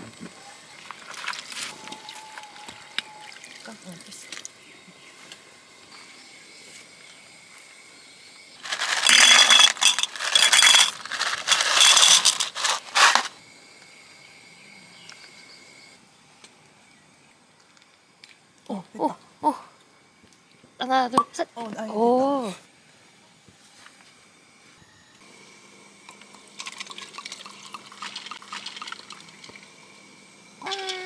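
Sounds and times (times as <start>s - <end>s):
metal clinking with ringing tone: 8.8s - 12.6s.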